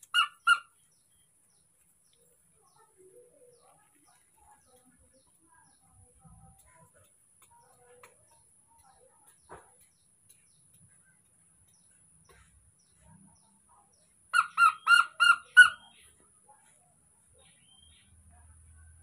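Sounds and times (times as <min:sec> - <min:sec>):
high-pitched animal calls: 0:00.0 - 0:00.8, 0:14.4 - 0:16.0.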